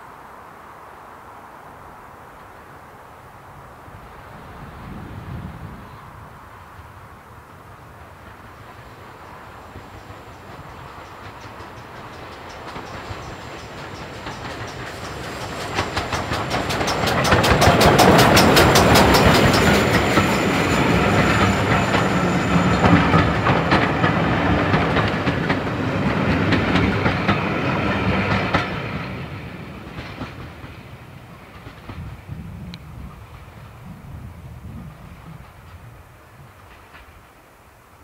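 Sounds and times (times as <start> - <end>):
steam locomotive exhaust beats: 4.7 - 38.0
coaches clicking over rail joints: 8.2 - 33.8.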